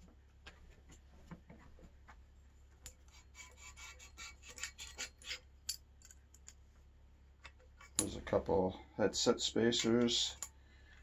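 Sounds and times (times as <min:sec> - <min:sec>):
metallic clicks of bicycle parts: 0:10.0 - 0:10.6.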